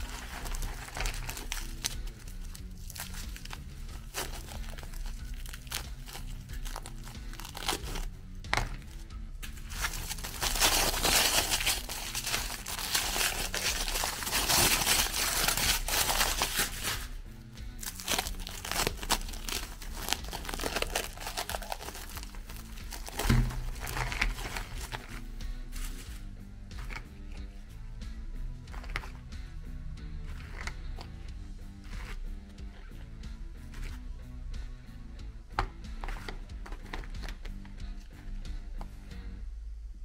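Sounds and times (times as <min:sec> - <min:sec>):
plastic film and foil crinkling: 0:00.0 - 0:17.2, 0:17.8 - 0:26.3
background music: 0:00.0 - 0:40.0.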